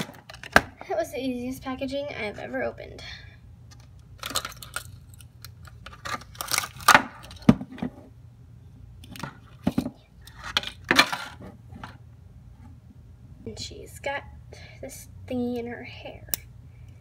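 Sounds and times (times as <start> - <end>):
plastic packaging crinkling: 4.2 - 7.4.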